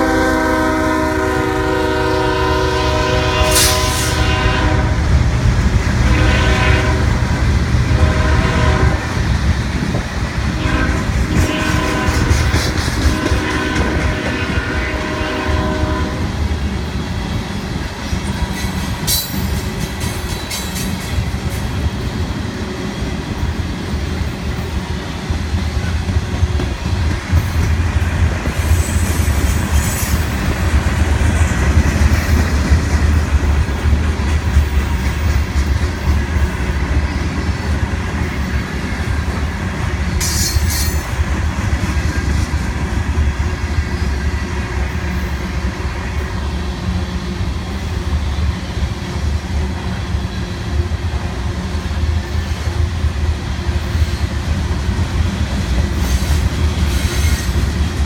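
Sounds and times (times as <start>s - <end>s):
freight train rumbling past: 0.0s - 58.0s
train wheel squeals: 17.4s - 22.3s, 28.4s - 32.6s, 40.0s - 41.2s, 55.7s - 58.0s.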